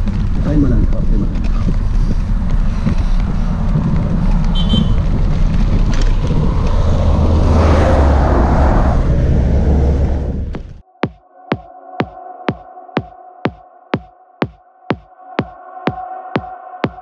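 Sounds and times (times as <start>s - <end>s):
low rumble: 0.0s - 10.8s
wind rushing over microphone: 0.0s - 10.8s
highway traffic passing: 1.0s - 10.8s
vehicle rushing past: 3.4s - 10.8s.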